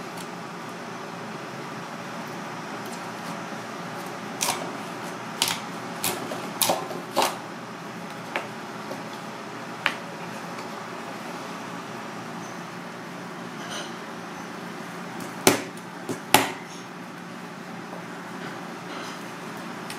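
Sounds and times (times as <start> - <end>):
knife chopping on cutting board: 15.4 - 16.7.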